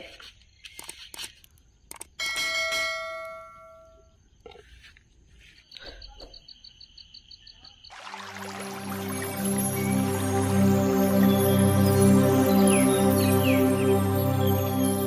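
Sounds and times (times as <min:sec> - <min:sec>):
soft new-age music: 0:07.9 - 0:15.0
steady high tone: 0:08.2 - 0:15.0.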